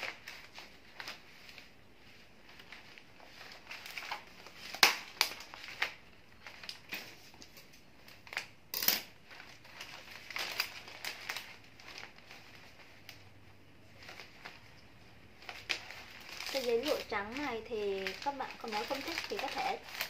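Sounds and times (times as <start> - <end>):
paper crinkling and rustling: 0.0 - 20.0
sharp paper snaps: 3.7 - 7.1.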